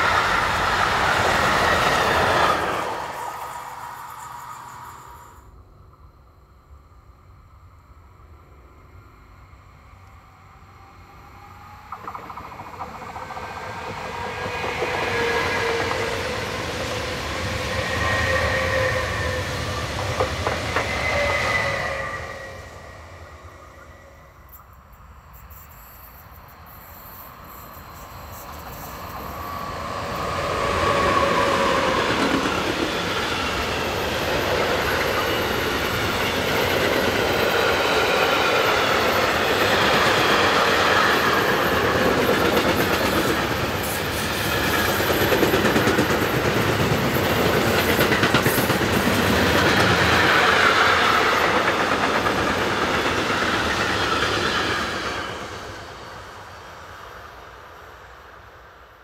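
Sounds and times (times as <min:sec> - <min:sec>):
freight train wheels on rails: 0:00.0 - 0:06.0, 0:10.0 - 0:59.0
electric train passing: 0:00.0 - 0:59.0.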